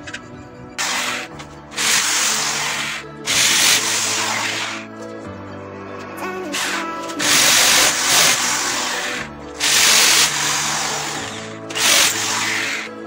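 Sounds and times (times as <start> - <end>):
background music: 0.0 - 13.0
electric drill boring into masonry: 0.8 - 5.1, 6.4 - 13.0.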